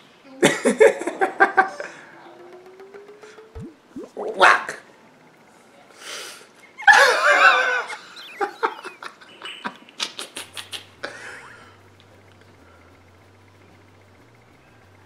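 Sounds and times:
laughter: 0.4 - 1.9, 6.8 - 11.8
shrill wavering cries: 6.8 - 8.9.

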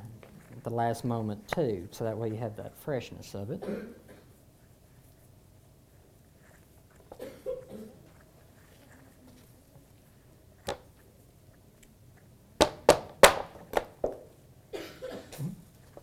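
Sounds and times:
soft scraping and handling: 0.0 - 3.4, 4.2 - 12.4.

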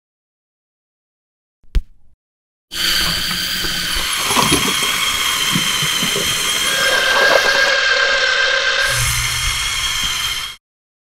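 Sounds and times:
toy electric motor whining: 2.7 - 10.6.

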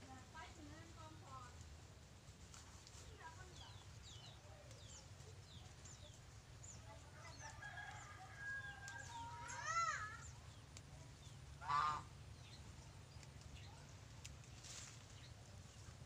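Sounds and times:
rooster crowing: 7.5 - 9.4.

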